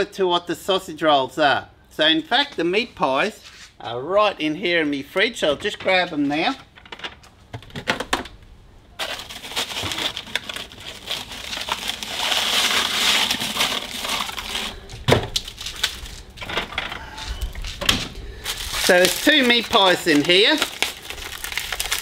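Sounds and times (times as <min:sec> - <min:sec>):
packaging crinkling: 0:09.0 - 0:22.0.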